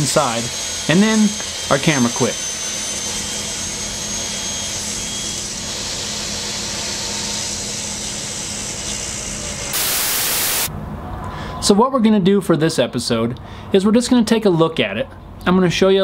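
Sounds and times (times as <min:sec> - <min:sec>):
table saw running: 0:00.0 - 0:10.7
static hiss burst: 0:09.7 - 0:10.7.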